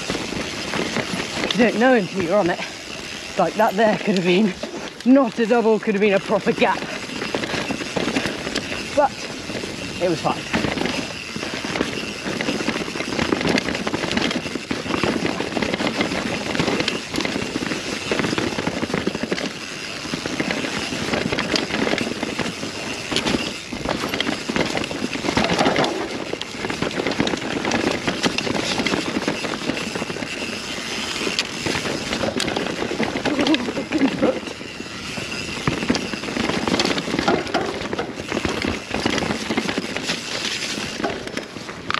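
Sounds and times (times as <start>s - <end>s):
bike clattering over bumps: 0.0s - 41.9s
wind rushing on camera: 0.0s - 41.9s
tyre rumble: 6.4s - 41.9s.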